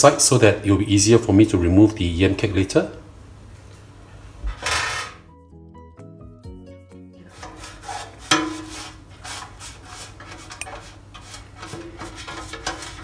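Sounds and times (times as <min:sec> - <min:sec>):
soft background music: 0:05.2 - 0:08.8
pastry brush rubbing metal tray: 0:07.3 - 0:13.0
metal tray knock: 0:08.3 - 0:08.7.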